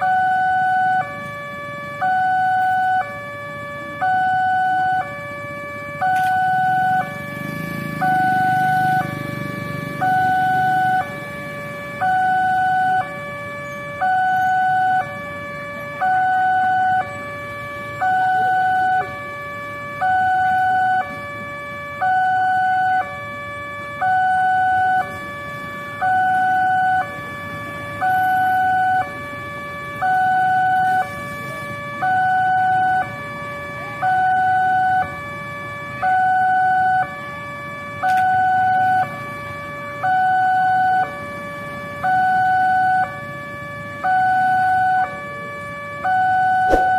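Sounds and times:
level crossing two-tone alarm: 0.0s - 46.9s.

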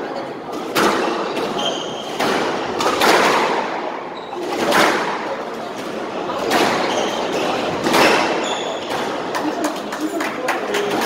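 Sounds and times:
squash ball hitting rackets and walls: 0.4s - 9.5s
sneaker squeak on wooden floor: 0.9s - 2.2s, 4.1s - 4.7s, 6.6s - 9.2s.

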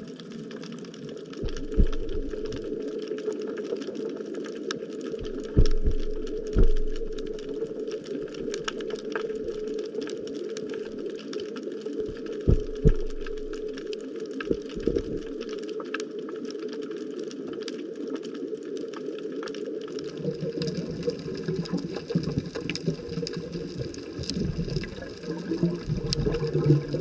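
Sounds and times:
crackle of fine clicks: 0.0s - 27.0s
heavy low thumps: 1.4s - 2.6s, 5.2s - 7.5s, 12.1s - 13.7s
steady low hum: 1.4s - 2.7s, 5.2s - 7.6s, 12.1s - 13.9s.

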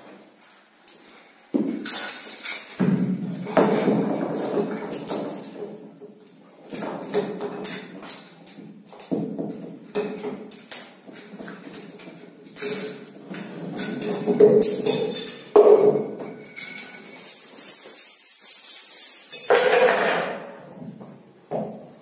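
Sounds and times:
chain and weight plates clinking: 0.3s - 20.8s.

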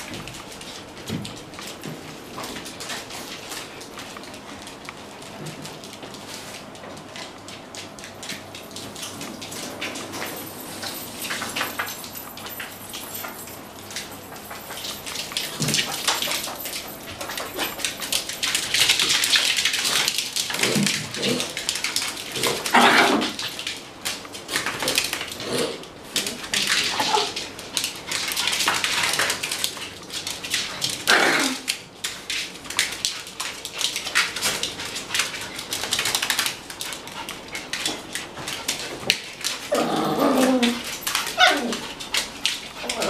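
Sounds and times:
dog claws clicking on floor: 0.0s - 43.0s
dogs barking: 40.6s - 42.1s.

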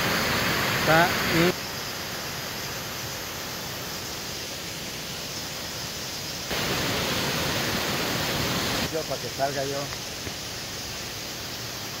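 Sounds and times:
waterfall rushing: 0.0s - 2.7s, 6.5s - 12.0s.

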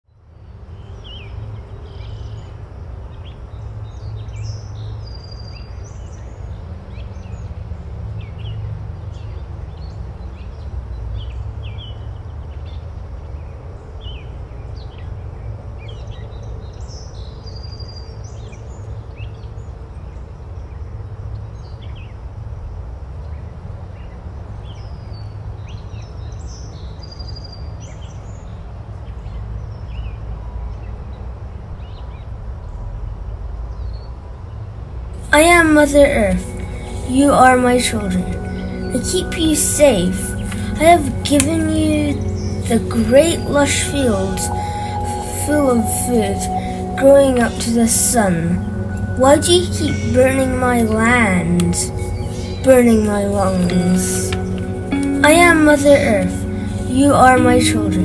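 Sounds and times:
steady low rumble: 35.2s - 58.0s.

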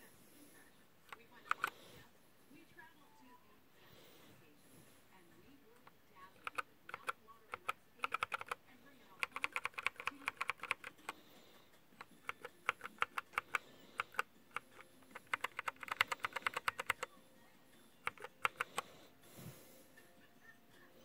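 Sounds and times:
mechanical keyboard key presses: 1.1s - 1.7s, 6.4s - 11.1s, 12.0s - 17.1s, 18.0s - 18.9s.

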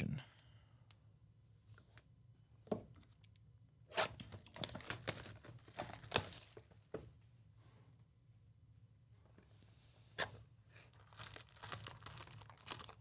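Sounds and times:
plastic shrink wrap tearing: 4.0s - 6.6s, 10.8s - 13.0s.

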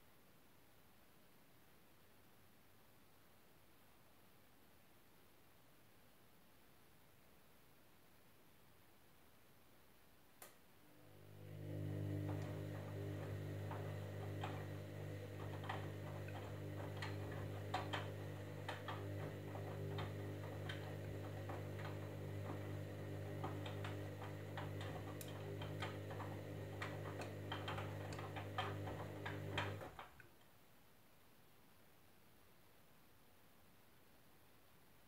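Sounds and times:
washing machine motor hum: 10.9s - 30.2s
laundry clicking in drum: 12.3s - 30.0s.

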